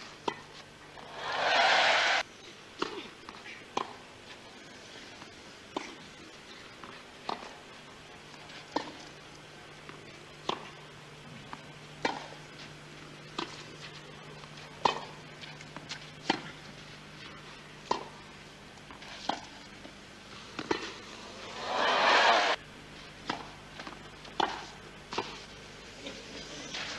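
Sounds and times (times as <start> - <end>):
crowd noise: 1.0 - 2.2.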